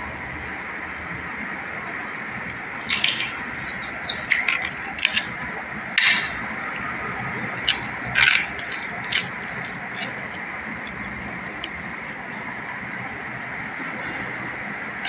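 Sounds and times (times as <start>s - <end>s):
crisp papad crunching: 7.6s - 12.1s.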